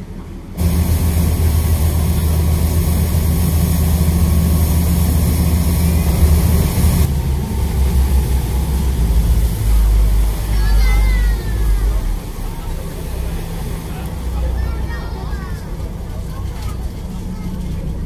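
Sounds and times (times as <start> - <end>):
vehicle engine drone: 0.0 - 18.0
hiss: 0.6 - 14.4.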